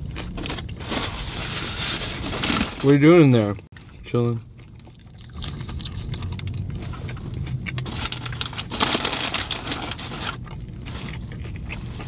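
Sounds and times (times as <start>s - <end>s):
chewing sandwich: 3.8s - 8.5s, 9.5s - 12.0s.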